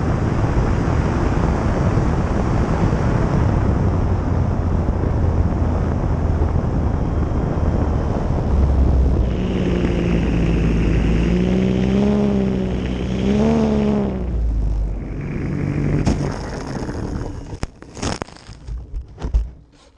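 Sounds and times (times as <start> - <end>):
wind on microphone: 0.0 - 19.7
electric motor whine: 7.7 - 18.0.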